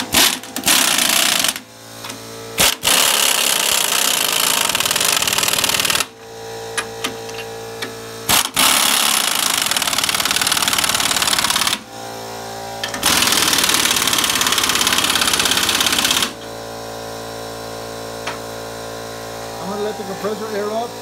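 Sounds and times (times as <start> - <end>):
pneumatic impact wrench hammering: 0.0 - 11.9, 12.8 - 16.7, 18.2 - 18.6
steady machine hum: 0.0 - 21.0.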